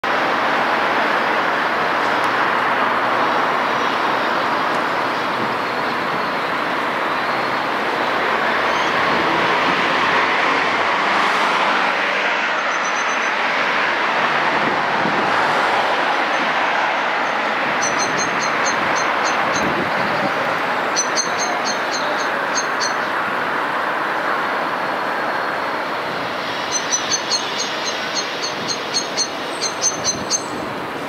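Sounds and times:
steady rushing noise: 13.3s - 31.0s.

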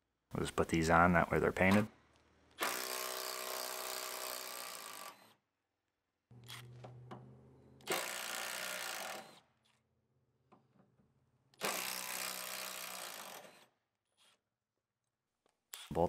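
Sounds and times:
impact driver running bolts: 2.6s - 5.2s, 7.8s - 9.4s, 11.6s - 13.6s.

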